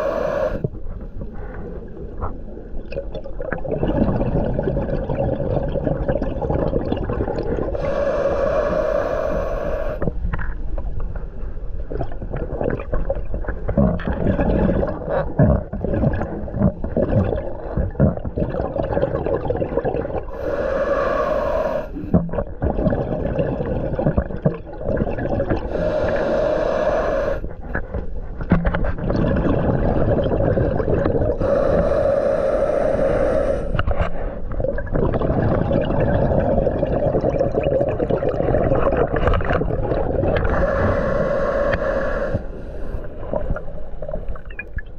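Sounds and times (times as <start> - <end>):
regulator inhale hiss: 0.0 - 0.7, 7.8 - 10.1, 20.3 - 22.2, 25.6 - 27.8, 31.4 - 34.4, 40.4 - 43.4.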